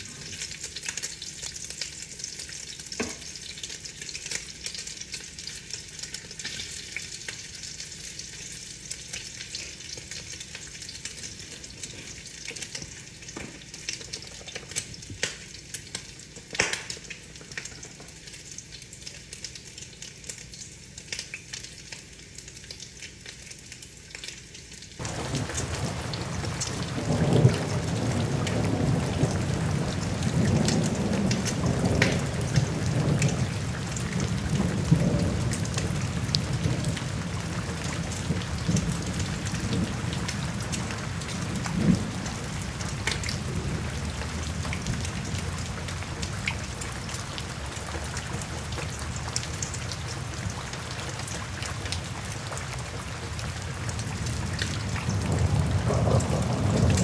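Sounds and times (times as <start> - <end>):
rain pattering: 0.0 - 57.0
sharp drip ticks: 0.3 - 28.7
low rolling thunder: 25.0 - 50.7, 53.5 - 57.0.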